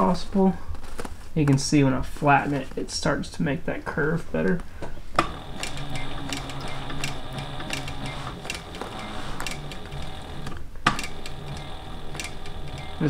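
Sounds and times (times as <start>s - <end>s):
sewing machine motor humming: 5.2s - 13.0s
sewing machine stitch clacks: 5.2s - 13.0s.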